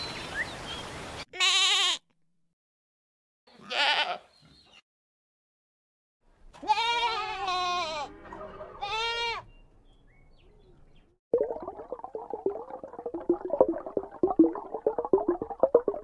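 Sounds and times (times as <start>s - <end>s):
animal bleating: 1.3s - 2.0s, 3.5s - 4.3s, 6.6s - 9.5s.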